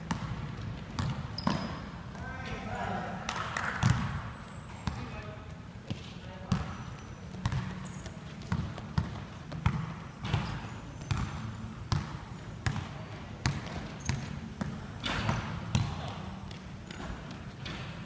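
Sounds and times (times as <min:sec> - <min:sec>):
basketball bouncing on hard floor: 0:00.0 - 0:01.8, 0:05.9 - 0:17.9.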